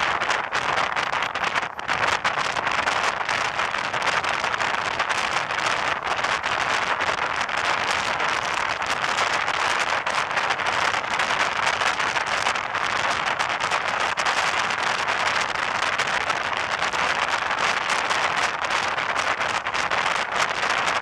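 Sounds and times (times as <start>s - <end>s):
fine crackle: 0.0s - 21.0s.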